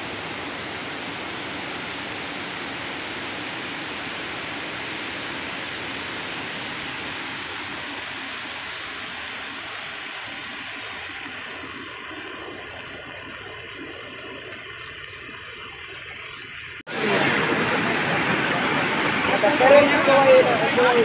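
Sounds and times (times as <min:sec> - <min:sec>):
floodwater rushing: 0:16.9 - 0:21.0.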